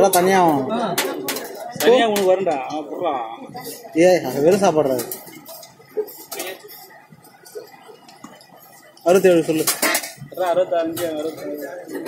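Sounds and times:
metal ladles clinking on pots: 0:00.0 - 0:02.8, 0:09.3 - 0:12.0.

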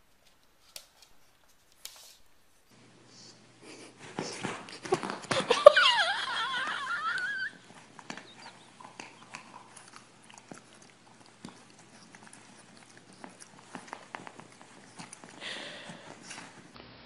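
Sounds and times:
dog whining: 0:05.6 - 0:16.5.

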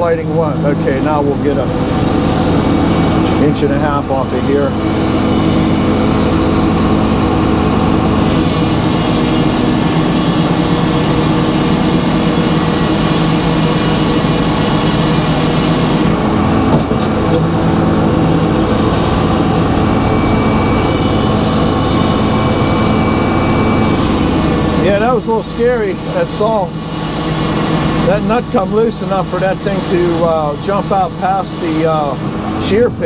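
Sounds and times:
circular saw cutting board: 0:20.1 - 0:32.4.

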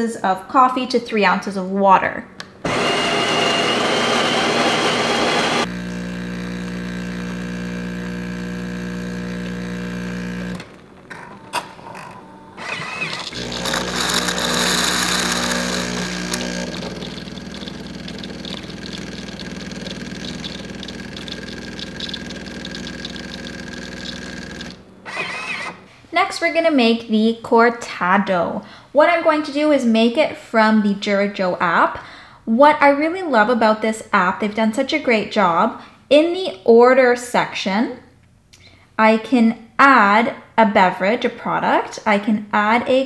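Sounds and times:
espresso machine pump humming: 0:02.7 - 0:11.5, 0:12.4 - 0:25.8
coffee grinder grinding: 0:02.7 - 0:25.8
hot water hissing: 0:15.0 - 0:24.8.

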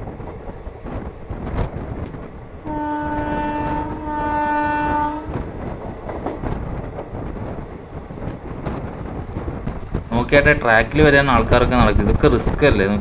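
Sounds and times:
train rumble and wheel clatter: 0:00.0 - 0:13.0
train horn blast: 0:02.6 - 0:05.4.

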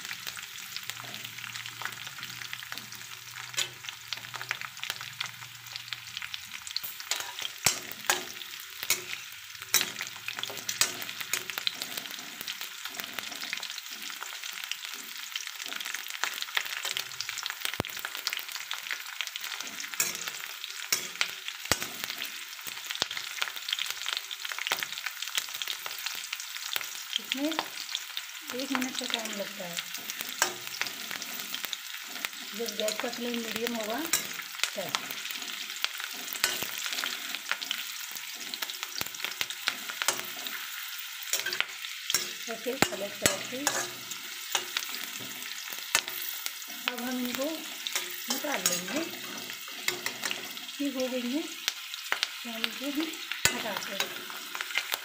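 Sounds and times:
vegetables sizzling in hot oil: 0:00.0 - 0:55.0
spatula stirring in metal pan: 0:06.8 - 0:14.3, 0:19.4 - 0:22.5, 0:29.8 - 0:50.7.

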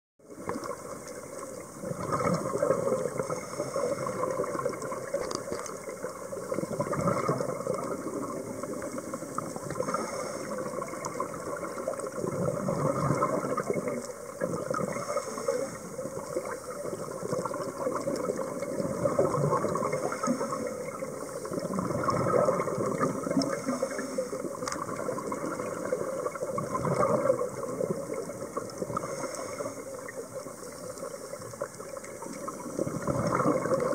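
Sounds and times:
bubbly underwater exhalations: 0:01.8 - 0:30.5, 0:32.4 - 0:33.9
regulator hissing inhalations: 0:03.2 - 0:04.2, 0:09.8 - 0:11.0, 0:14.9 - 0:16.7, 0:19.9 - 0:21.6, 0:23.4 - 0:24.6, 0:29.0 - 0:30.1.

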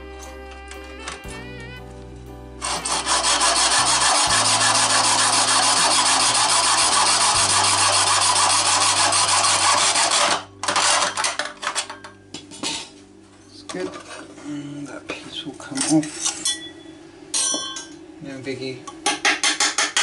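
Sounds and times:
hacksaw cutting pipe: 0:02.6 - 0:11.3, 0:19.1 - 0:20.0.

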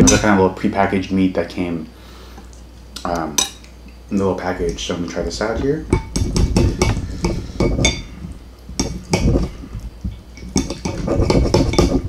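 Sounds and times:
knife and fork scraping a plate: 0:10.4 - 0:12.0.

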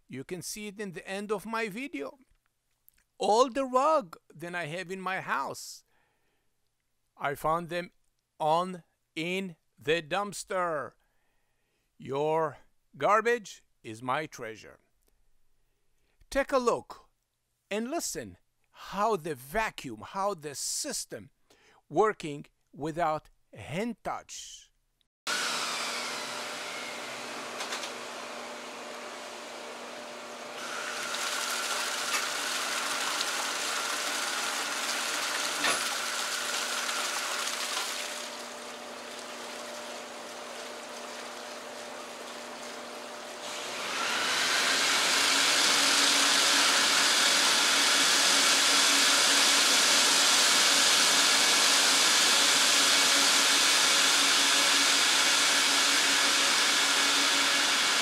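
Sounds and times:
vacuum motor whine: 0:25.3 - 0:37.2, 0:38.0 - 0:58.0
water spraying: 0:30.6 - 0:43.8.

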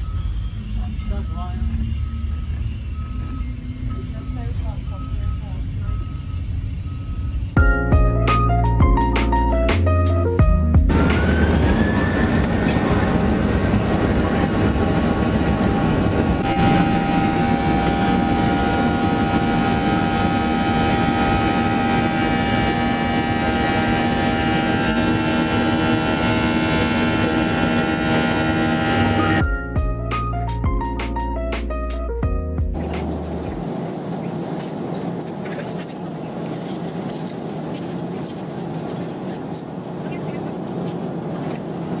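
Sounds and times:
jet engines at takeoff: 0:00.0 - 0:07.6, 0:10.9 - 0:29.5, 0:32.8 - 0:42.0.

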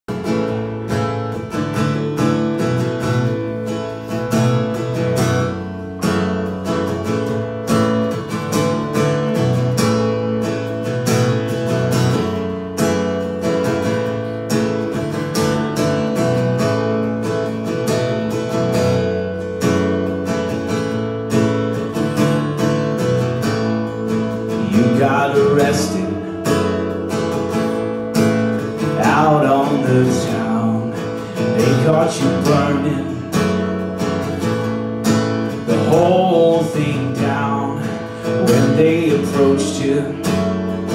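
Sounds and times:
electric guitar: 0:00.1 - 0:40.9
strummed acoustic guitar: 0:00.1 - 0:40.9
man singing: 0:24.4 - 0:27.1, 0:28.7 - 0:33.7, 0:35.5 - 0:40.9.

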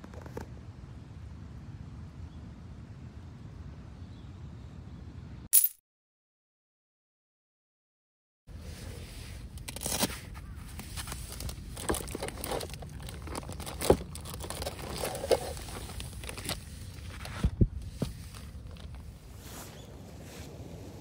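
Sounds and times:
crinkling handling noise: 0:08.7 - 0:20.6.

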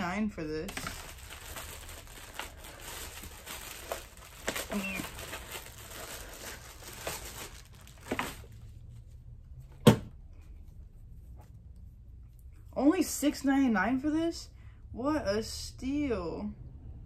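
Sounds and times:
plastic bag crinkling and tearing: 0:00.6 - 0:08.7.

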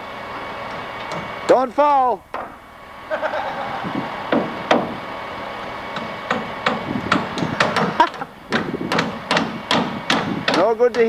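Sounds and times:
hammer driving nails into wood: 0:06.0 - 0:11.0.

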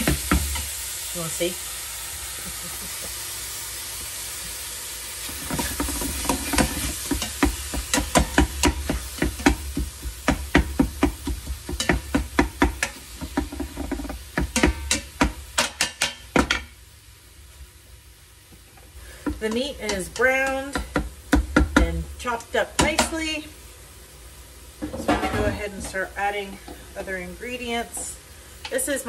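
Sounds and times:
meat sizzling: 0:00.0 - 0:29.0
meat chopper scraping pot: 0:05.2 - 0:15.5.

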